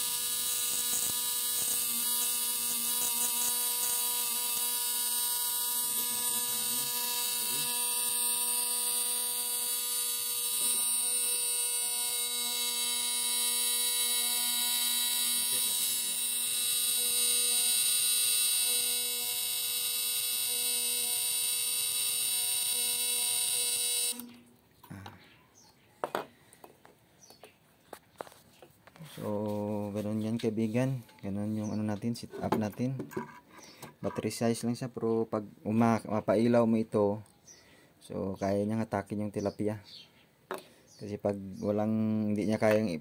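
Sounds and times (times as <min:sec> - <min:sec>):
inverter buzzing with high whine: 0:00.0 - 0:25.0.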